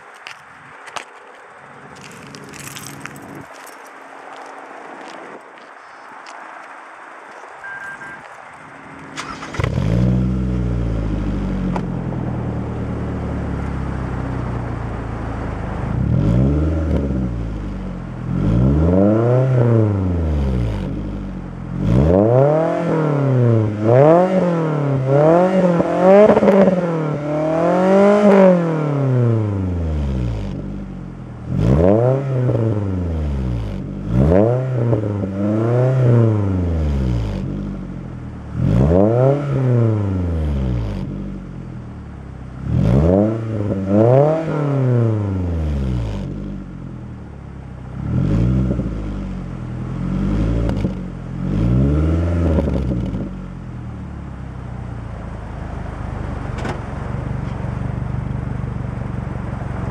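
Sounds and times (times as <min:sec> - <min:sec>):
car engine idling: 0:07.3 - 0:18.9, 0:52.4 - 0:59.9
car engine revving: 0:08.8 - 0:54.1.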